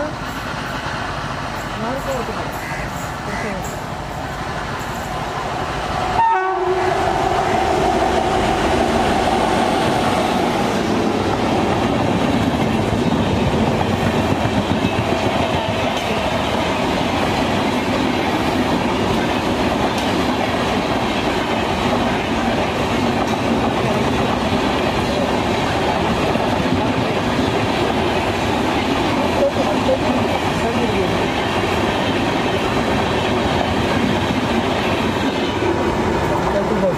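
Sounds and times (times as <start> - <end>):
train coaches rumbling and clacking: 0.0 - 36.9
train horn: 6.2 - 7.7.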